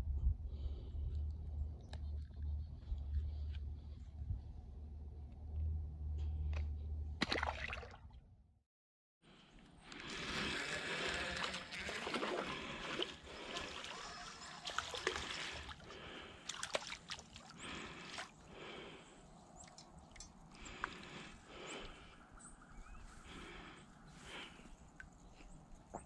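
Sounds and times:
water splashing and sloshing: 0:06.5 - 0:08.2, 0:09.9 - 0:22.0.

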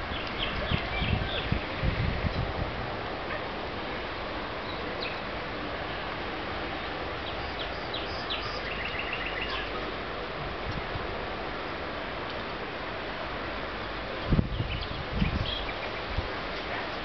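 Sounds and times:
outdoor hiss: 0:00.0 - 0:17.0
songbird chirping: 0:07.2 - 0:09.8.

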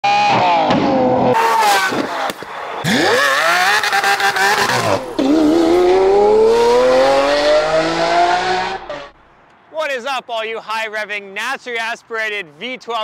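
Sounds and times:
sports car engine revving: 0:02.8 - 0:09.2.

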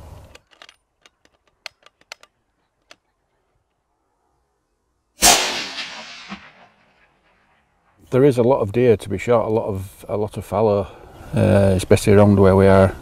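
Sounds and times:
rifle shot: 0:05.2 - 0:07.6.

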